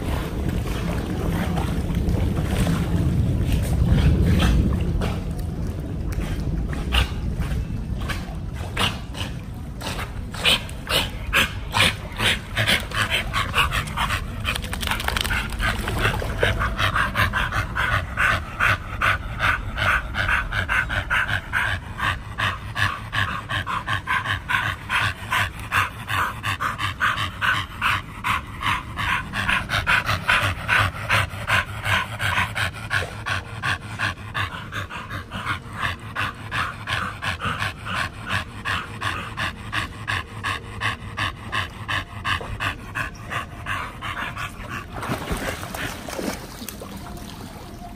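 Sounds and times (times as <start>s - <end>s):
dog panting rapidly: 6.8s - 46.1s.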